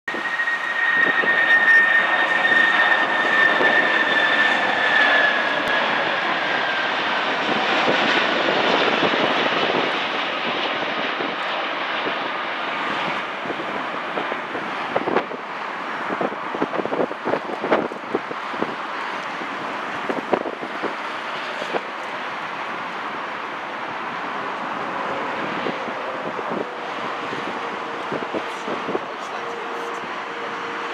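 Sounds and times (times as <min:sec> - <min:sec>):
jet engine roar: 0:00.1 - 0:30.9.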